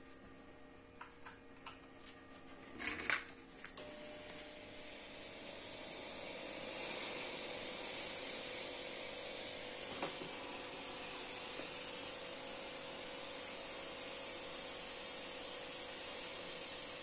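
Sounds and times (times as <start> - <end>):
fog machine hissing: 3.9 - 17.0.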